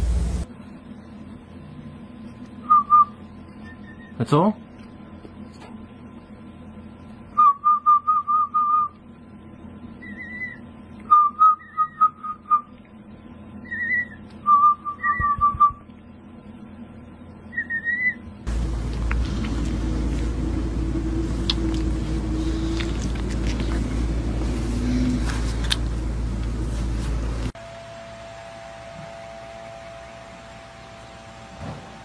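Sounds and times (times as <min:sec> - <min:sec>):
rushing noise with low hum: 0:00.0 - 0:00.5, 0:18.5 - 0:27.6.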